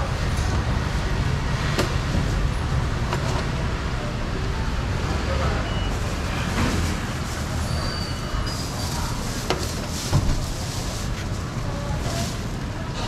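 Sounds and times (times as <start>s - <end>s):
market background noise: 0.0s - 13.0s
street traffic rumble: 0.0s - 13.0s.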